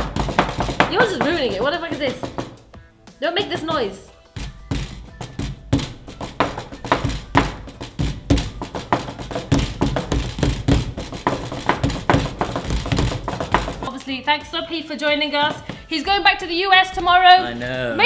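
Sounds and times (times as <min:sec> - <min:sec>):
hands drumming on tabletop: 0:00.0 - 0:02.8, 0:03.4 - 0:14.0.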